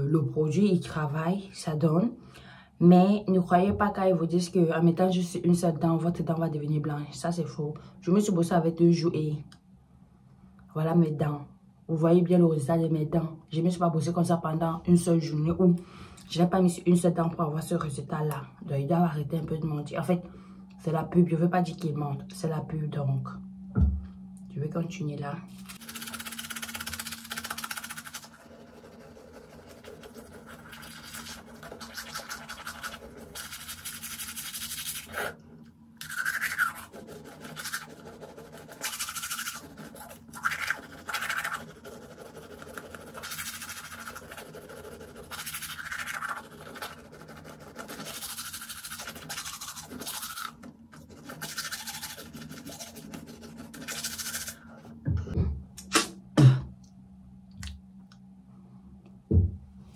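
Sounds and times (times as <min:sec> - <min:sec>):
toothbrush scrubbing teeth: 0:25.5 - 0:35.4, 0:36.0 - 0:54.7.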